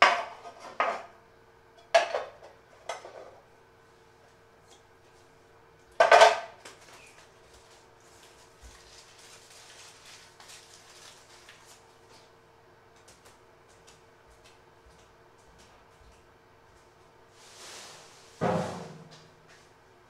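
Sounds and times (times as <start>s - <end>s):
dishes clattering: 6.0s - 6.5s.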